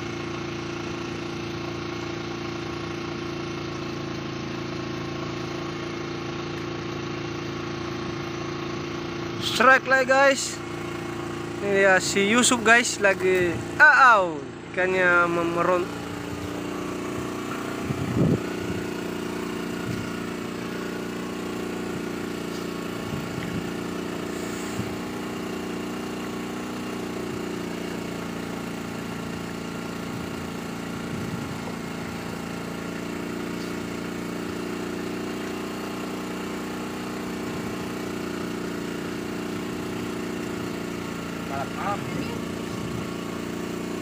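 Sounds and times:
boat engine humming: 0.0 - 44.0.

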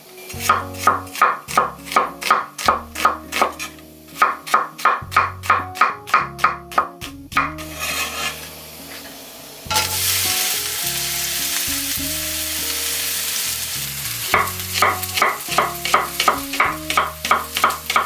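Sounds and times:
onion sizzling in frying pan: 0.0 - 18.0
knife chopping on wooden board: 0.4 - 7.6.

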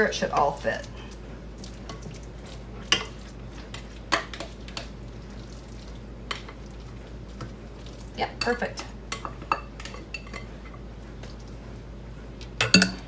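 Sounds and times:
spoon clinking on metal pan: 12.6 - 13.0.

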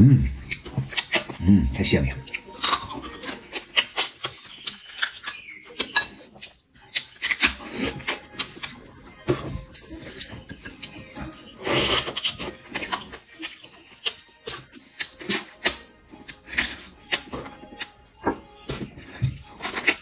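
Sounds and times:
sucking and chewing: 0.0 - 20.0
crab shell cracking: 2.3 - 8.8.

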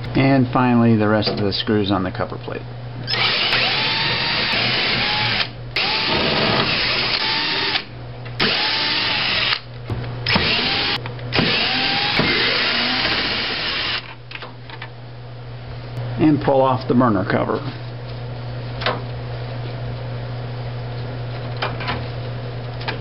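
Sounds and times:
cordless drill motor whine: 3.1 - 9.6, 10.2 - 14.1.

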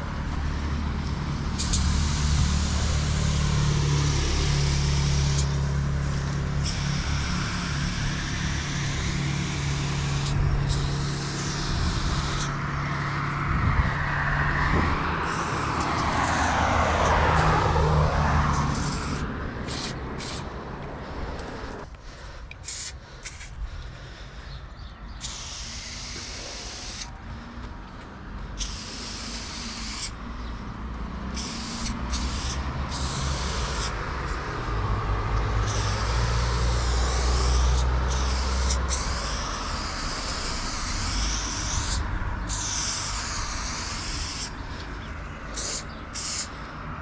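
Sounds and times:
passing vehicle rush: 0.0 - 47.0
vehicle engine humming: 0.0 - 47.0
aerosol spray can hissing: 6.6 - 12.6, 15.2 - 17.7, 18.5 - 20.6, 22.6 - 23.5, 25.2 - 27.1, 28.6 - 30.2, 31.4 - 34.1, 35.6 - 44.6, 45.5 - 46.6.

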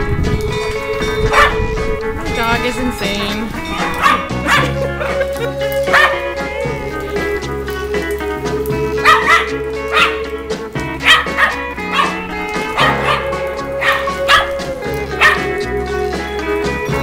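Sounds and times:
background music with held notes: 0.0 - 17.0
dog barking: 1.3 - 1.7, 3.6 - 4.9, 5.8 - 6.7, 9.0 - 10.3, 11.0 - 15.6.

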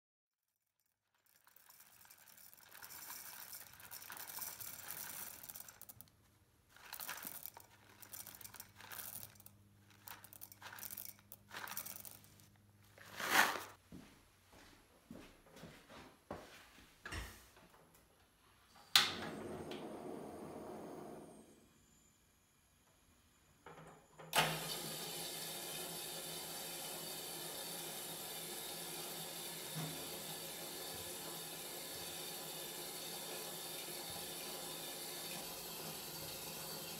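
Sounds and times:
coffee beans pouring into glass jar: 1.1 - 6.1, 6.7 - 13.7, 24.9 - 36.9
paper bag crinkling: 1.2 - 6.0, 6.7 - 13.8.

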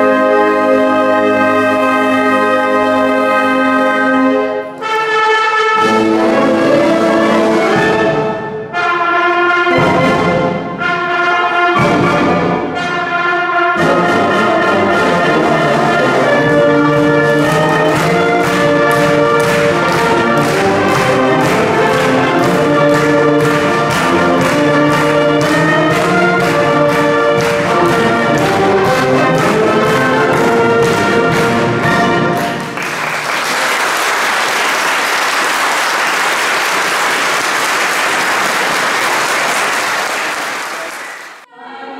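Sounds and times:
wind band playing: 0.0 - 41.5
audience applause: 17.4 - 31.6, 32.3 - 41.5.

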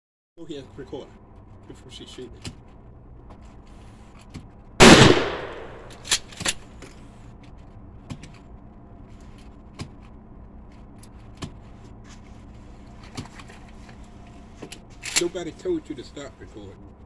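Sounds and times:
gun handling clacks: 4.2 - 7.0, 14.7 - 15.3
shotgun blast with echo: 4.8 - 6.1.

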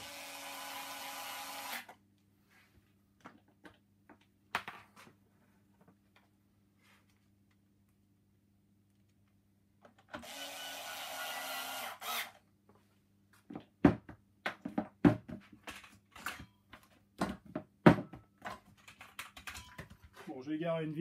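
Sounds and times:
electric screwdriver running: 0.0 - 1.9, 10.2 - 12.4
clicks and knocks of tools: 18.4 - 20.2.

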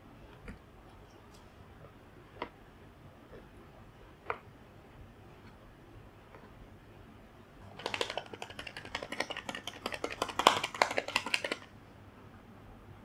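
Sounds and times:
plastic shaker clattering: 7.6 - 11.7.

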